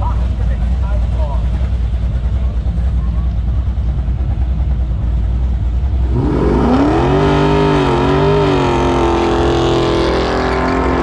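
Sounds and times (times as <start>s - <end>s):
car engine revving hard: 6.0s - 11.0s.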